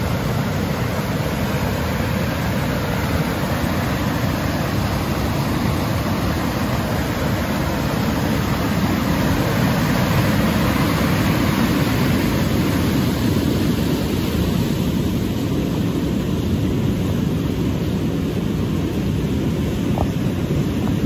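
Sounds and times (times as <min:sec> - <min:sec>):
river rapids rushing: 0:00.0 - 0:15.9.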